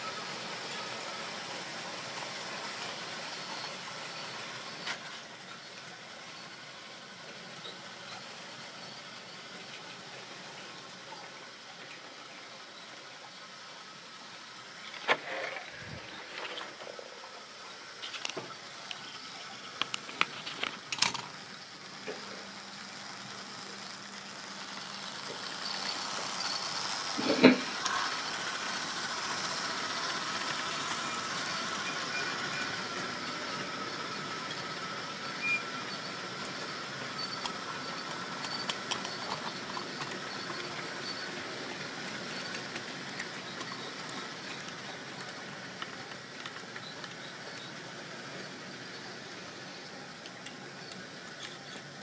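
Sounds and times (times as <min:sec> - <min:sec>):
small electric motor whine: 0:17.6 - 0:52.0
model train wheels rattling: 0:17.9 - 0:52.0.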